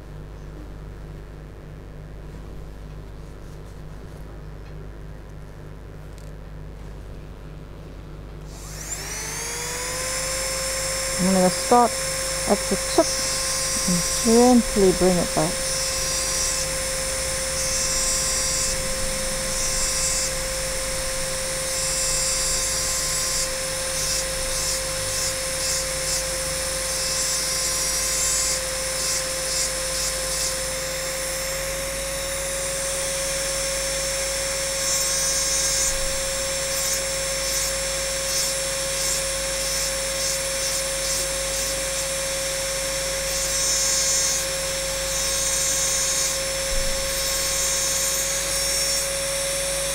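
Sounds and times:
rotary drill whine: 0:08.4 - 0:49.9.

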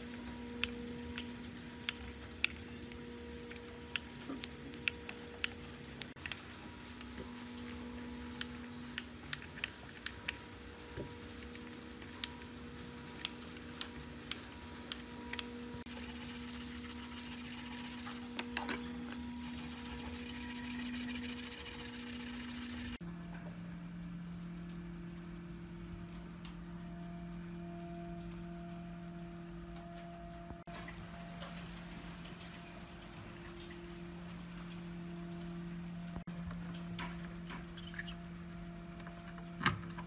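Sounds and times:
brush scrubbing circuit board: 0:15.9 - 0:18.2, 0:19.4 - 0:23.0.

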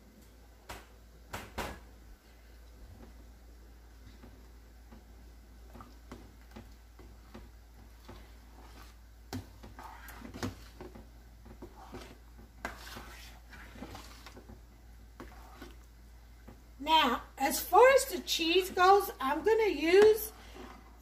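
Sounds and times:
spoon scraping metal pot: 0:11.6 - 0:14.5.

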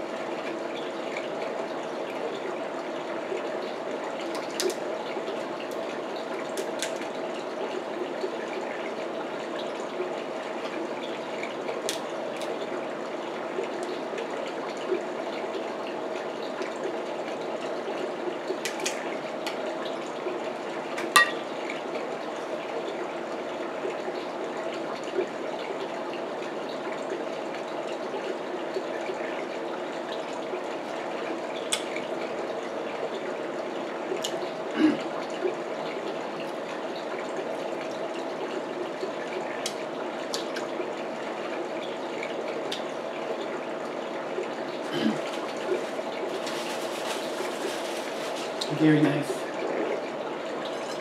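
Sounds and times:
crab shells cracking: 0:18.6 - 0:19.0.

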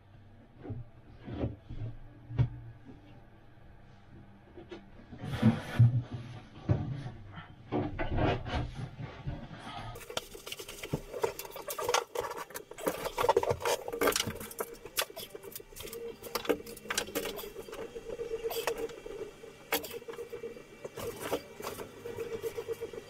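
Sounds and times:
faint steady hum: 0:00.0 - 0:23.0
wooden boards clicking and scraping: 0:07.7 - 0:17.8.

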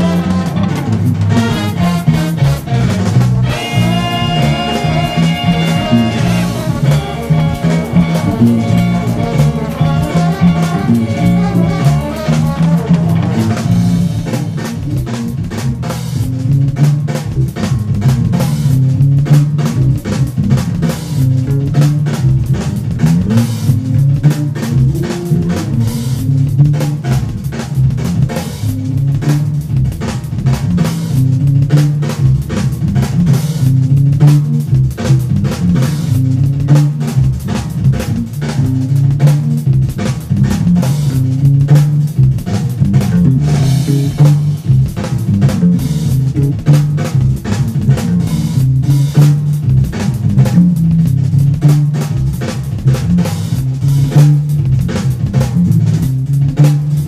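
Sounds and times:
held horn-like notes: 0:00.0 - 0:14.0
drum kit: 0:00.0 - 0:57.0
electric bass line: 0:00.0 - 0:57.0.

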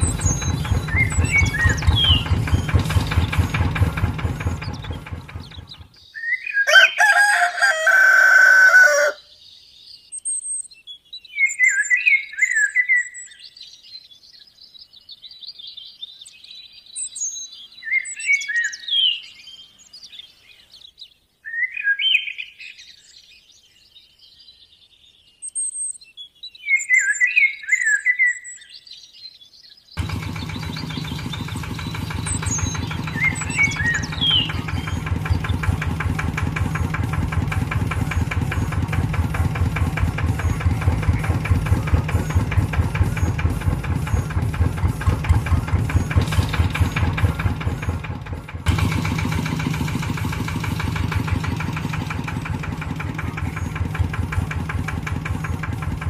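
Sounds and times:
engine running: 0:00.0 - 0:06.0, 0:30.0 - 0:56.0
small birds chirping: 0:00.0 - 0:56.0
rooster crowing: 0:06.6 - 0:09.3.

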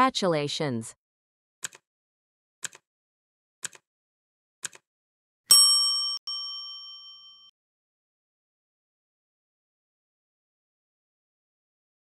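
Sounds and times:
timer ticks: 0:01.6 - 0:01.8, 0:02.6 - 0:02.8, 0:03.6 - 0:03.8
bright bell ding: 0:05.5 - 0:07.5.

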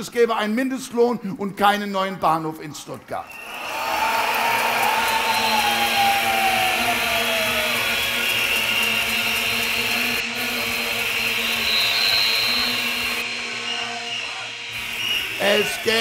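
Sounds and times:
crowd applauding and cheering: 0:03.3 - 0:16.0
falling whistle-like tone: 0:03.3 - 0:16.0
steady horn-like tones: 0:04.7 - 0:16.0.

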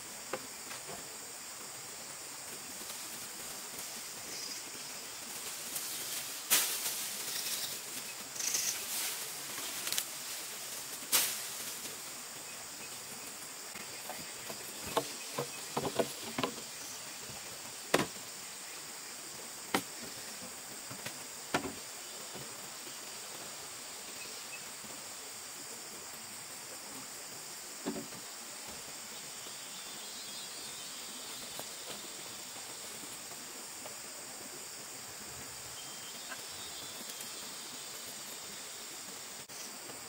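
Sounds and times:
high-pitched insect chorus: 0:00.0 - 0:40.0
bamboo poles knocking: 0:14.1 - 0:16.7, 0:17.9 - 0:18.2.

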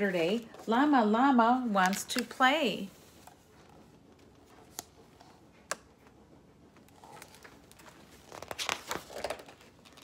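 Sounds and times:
paper page turning: 0:07.0 - 0:10.0.

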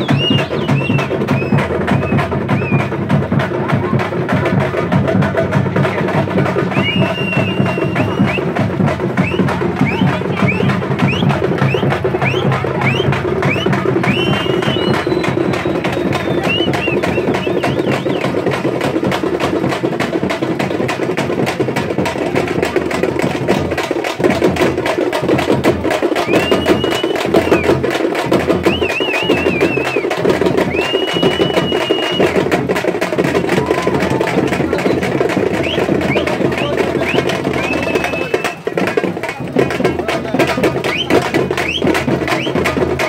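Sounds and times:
high whistles: 0:00.0 - 0:02.9, 0:06.7 - 0:08.6, 0:09.2 - 0:18.3, 0:26.2 - 0:27.7, 0:28.6 - 0:30.1, 0:30.7 - 0:32.4, 0:34.8 - 0:38.6, 0:40.8 - 0:42.7
fast percussion music: 0:00.0 - 0:43.0.

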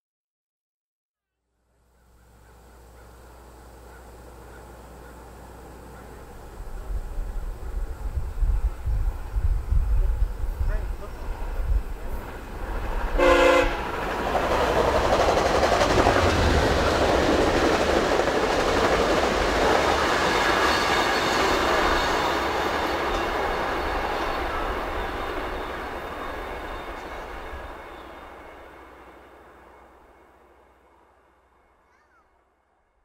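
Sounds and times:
train rumble and wheel clatter: 0:02.1 - 0:32.2
train horn blast: 0:13.1 - 0:14.0.

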